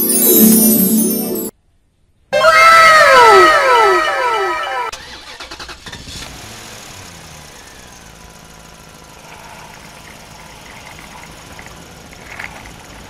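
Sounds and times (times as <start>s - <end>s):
low engine-like hum: 7.4s - 13.0s.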